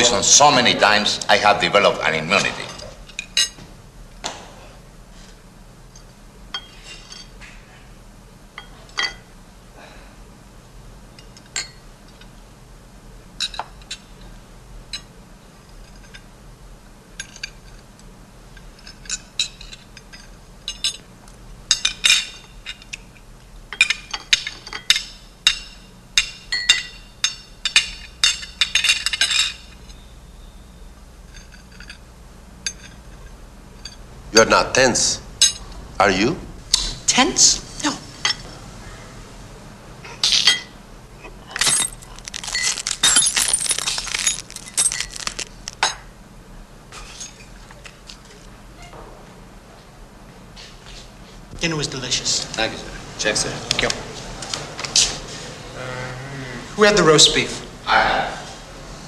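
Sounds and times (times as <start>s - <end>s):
loud cutlery clattering: 41.5s - 46.0s.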